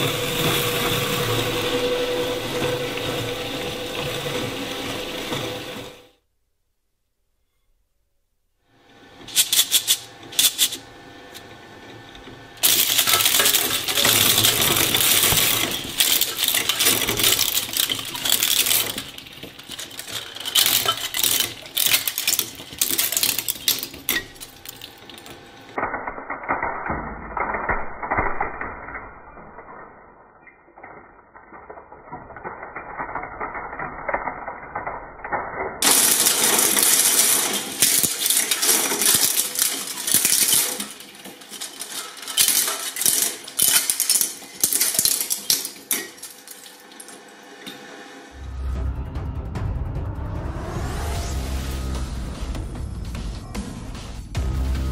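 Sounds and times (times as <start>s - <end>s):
shredder cracking plastic: 9.2s - 30.2s, 30.8s - 47.3s
plastic pieces rattling: 9.3s - 10.8s, 12.6s - 47.2s.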